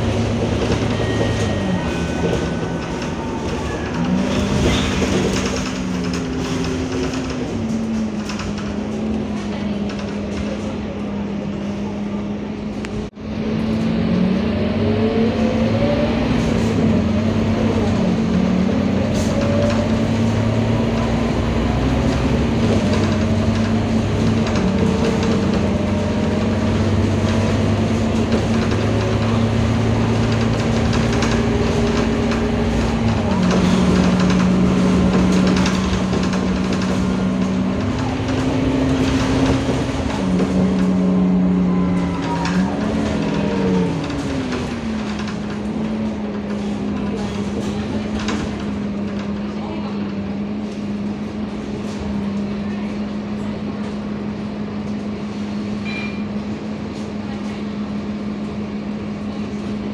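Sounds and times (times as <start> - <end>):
rising drivetrain whine: 0.0 - 10.3, 12.6 - 48.9
bus engine hum: 0.0 - 59.9.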